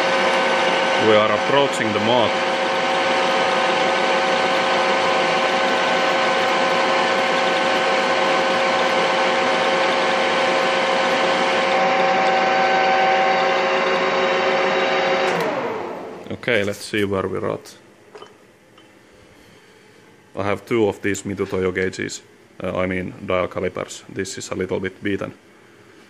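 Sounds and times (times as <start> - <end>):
metal lathe gears whining: 0.0 - 14.6.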